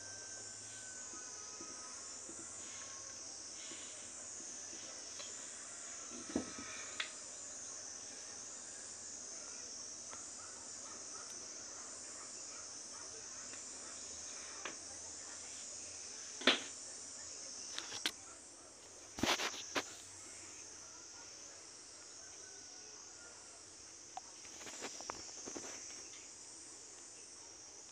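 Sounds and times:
insects chorus trilling: 0.0s - 27.9s.

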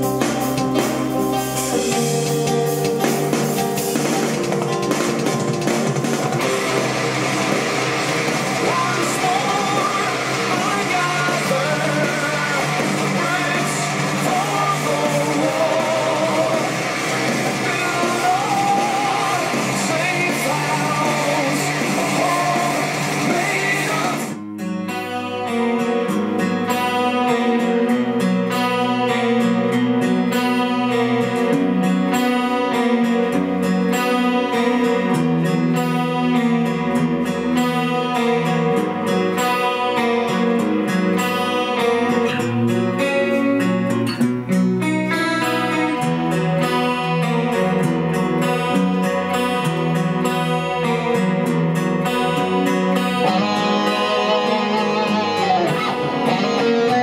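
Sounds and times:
full-band song with singing: 0.0s - 24.4s, 45.1s - 57.0s
plucked guitar music: 0.0s - 57.0s.

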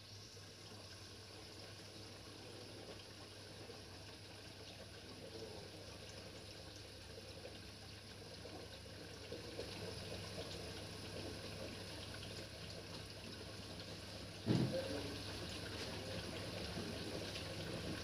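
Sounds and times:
water filling and trickling: 0.2s - 18.0s
dishwasher running: 14.4s - 18.0s.

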